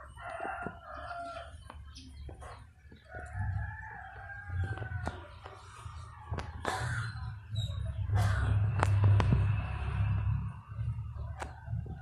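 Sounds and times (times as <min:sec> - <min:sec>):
rooster crowing: 0:00.0 - 0:01.6, 0:03.1 - 0:05.2.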